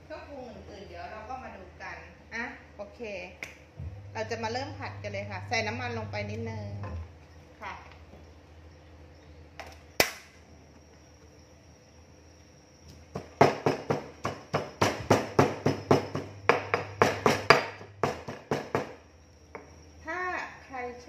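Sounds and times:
pestle pounding in stone mortar: 13.1 - 19.6.

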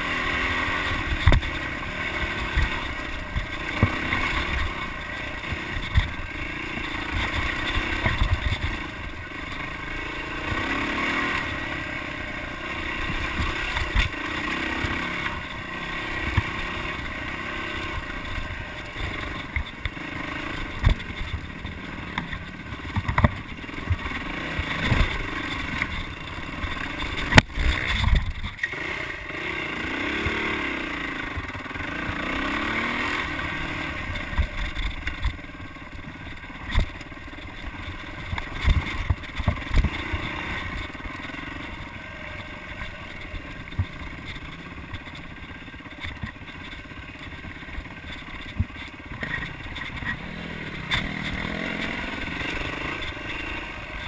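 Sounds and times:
dirt bike engine revving: 0.0 - 54.0
bike thudding over rough ground: 0.8 - 9.8, 32.5 - 54.0.

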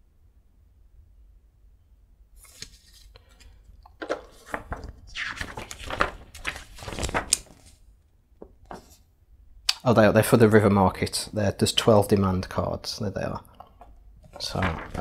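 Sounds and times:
cards rustling and scraping: 2.4 - 7.8, 8.6 - 9.0, 14.2 - 15.0.

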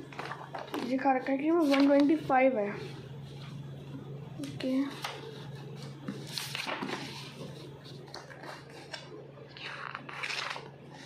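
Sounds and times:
steady low hum: 0.0 - 11.0
paper rustling: 0.1 - 2.3, 4.8 - 11.0.

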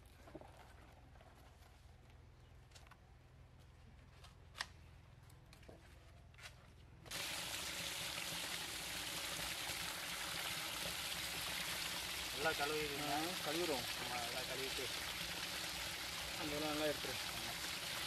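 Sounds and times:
water pouring and splashing: 7.1 - 18.0.

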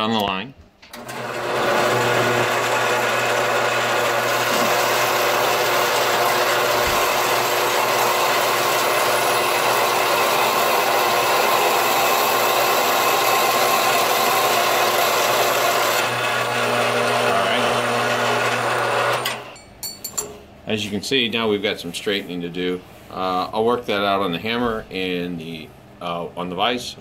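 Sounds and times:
band saw cutting metal: 1.0 - 19.6.

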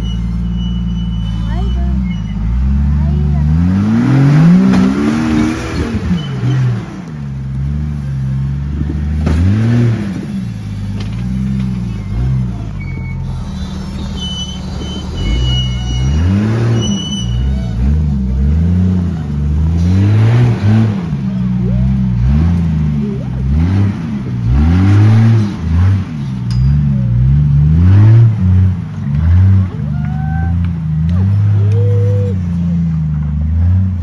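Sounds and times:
car engine revving: 0.0 - 34.0.

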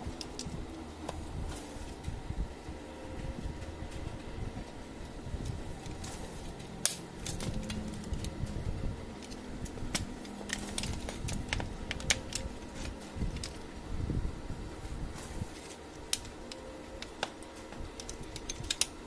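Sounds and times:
low rumble of hands on unit: 0.0 - 19.0.

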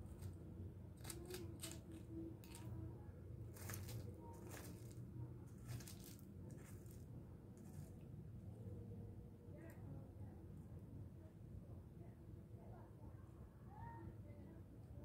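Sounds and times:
steady low hum: 0.0 - 15.0
dry leaves rustling and crackling: 1.0 - 2.7, 3.4 - 8.0.

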